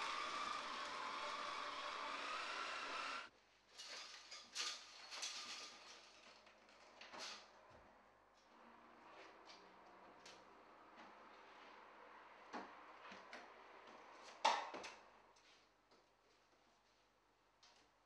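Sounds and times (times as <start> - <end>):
knocks rattles and scrapes: 0.0 - 7.5.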